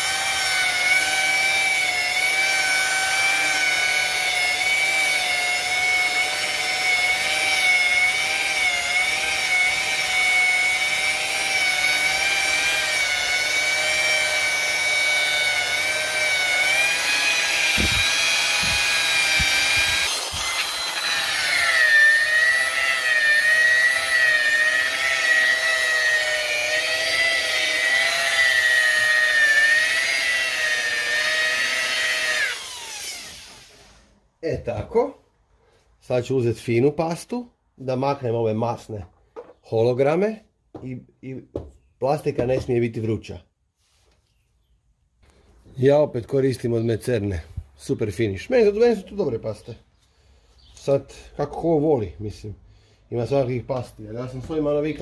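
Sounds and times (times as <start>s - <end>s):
electric polisher whining: 0.0s - 33.9s.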